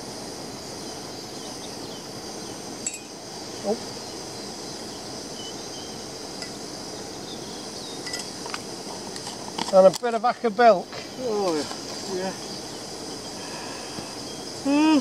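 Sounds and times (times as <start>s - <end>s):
camping stove burning: 0.0s - 15.0s
spoon clinking against mug: 2.8s - 3.1s.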